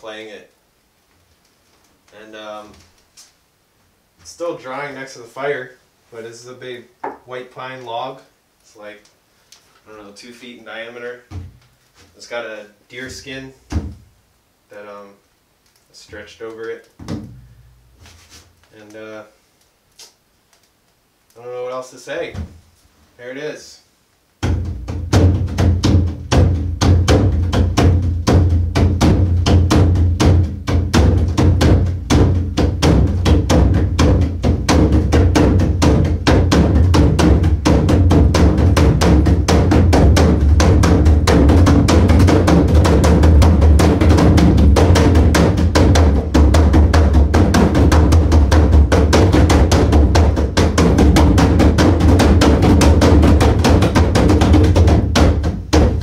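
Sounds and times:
deep drum boom: 24.4s - 56.0s.

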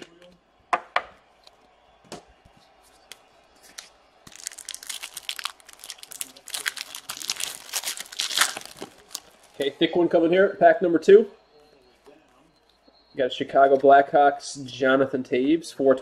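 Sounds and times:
wrapper tearing and crinkling: 3.8s - 9.6s.

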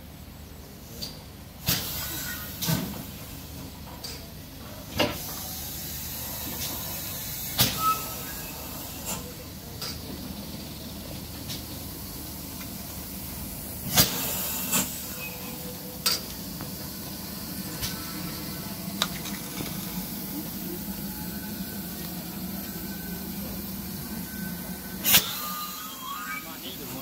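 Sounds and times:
steam locomotive hissing: 0.7s - 27.0s.

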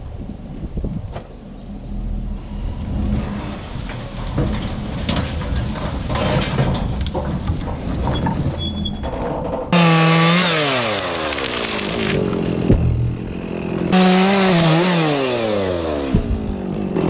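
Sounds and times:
low motor rumble: 0.0s - 9.8s, 11.4s - 17.0s
branches cracking and clattering: 3.7s - 14.0s.

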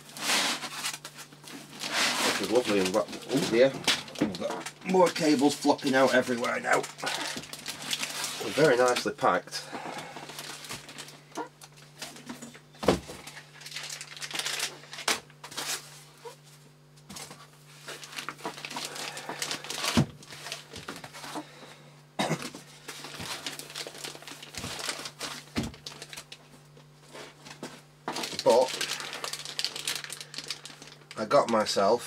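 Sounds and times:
foam blocks rubbing: 0.0s - 3.7s
plastic bag crinkling: 0.0s - 15.9s, 17.2s - 21.4s, 22.8s - 26.5s, 27.3s - 31.8s.

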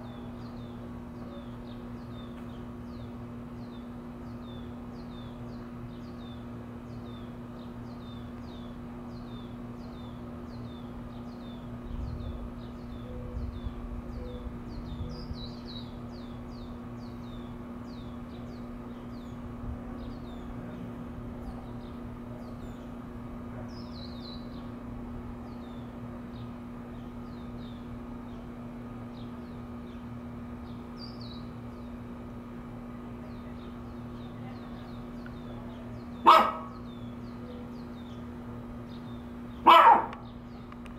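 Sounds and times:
small birds chirping: 0.0s - 40.9s
steady low hum: 0.0s - 40.9s
dog barking: 36.2s - 36.8s, 39.6s - 40.2s.

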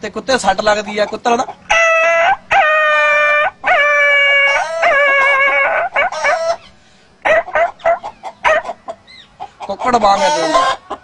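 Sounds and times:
man imitating hen clucking: 0.6s - 11.0s
man imitating yelping cries: 1.7s - 6.6s, 10.0s - 10.8s.

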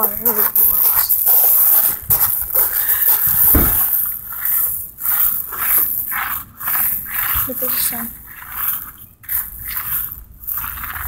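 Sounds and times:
rushing noise on phone microphone: 0.0s - 11.0s
low thump: 3.4s - 3.9s.

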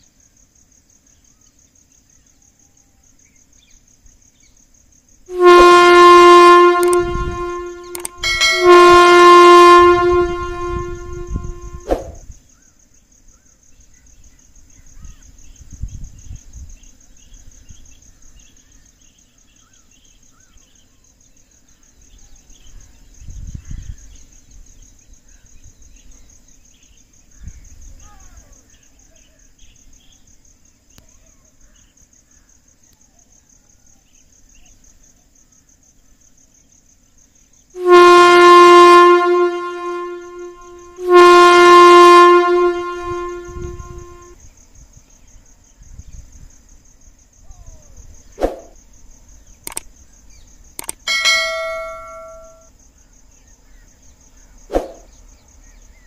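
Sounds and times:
insects buzzing: 0.0s - 56.0s
loud horn blasts: 5.3s - 12.2s, 37.8s - 44.4s, 50.8s - 52.7s.

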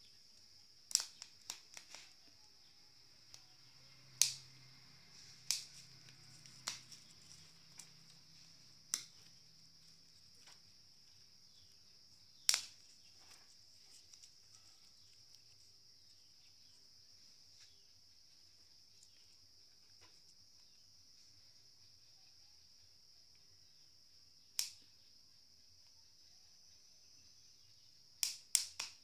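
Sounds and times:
crickets trilling: 0.0s - 29.0s
fire popping and cracking: 0.8s - 2.2s, 6.4s - 7.9s, 12.4s - 12.9s.

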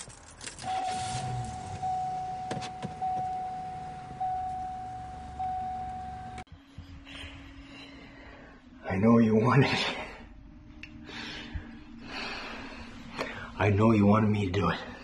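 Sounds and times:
car warning chime: 0.6s - 6.5s
low rumble inside car: 0.6s - 7.1s.

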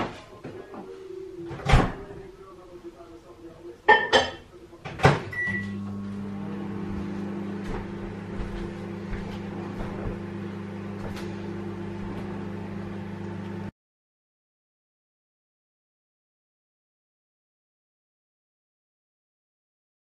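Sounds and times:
microwave running hum: 5.2s - 13.7s
short beep: 5.3s - 5.8s.

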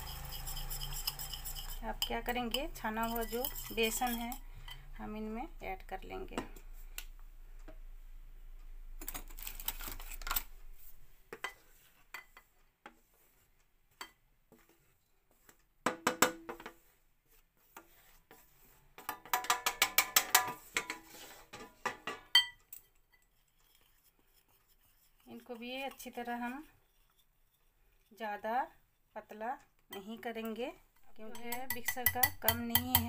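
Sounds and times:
flour scraped off a steel plate: 0.0s - 4.4s
utensils tapping on metal: 0.0s - 4.8s, 31.0s - 33.0s
whisk clinking against a bowl: 0.0s - 4.8s, 31.1s - 33.0s.

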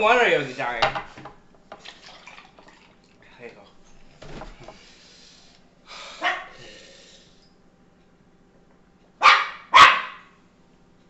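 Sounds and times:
dog barking: 6.2s - 6.6s, 9.2s - 10.4s.

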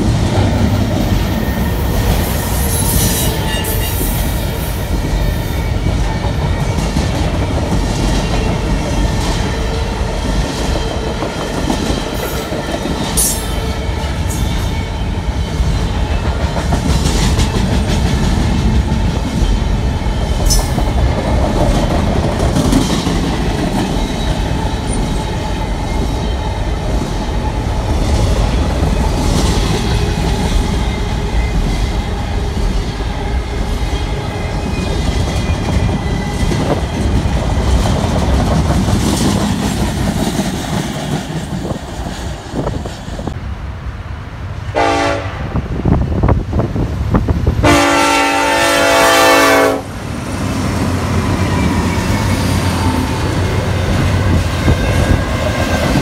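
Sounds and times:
train rumbling on rails: 0.0s - 56.0s
train horn blasts: 44.7s - 45.6s, 47.6s - 50.0s.

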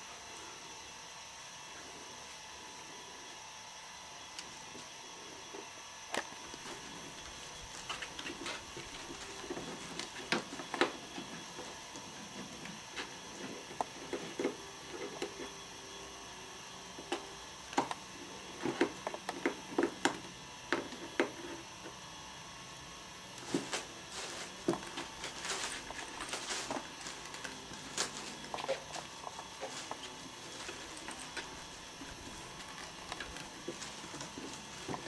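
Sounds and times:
kittens clawing at cardboard box: 23.4s - 35.0s.

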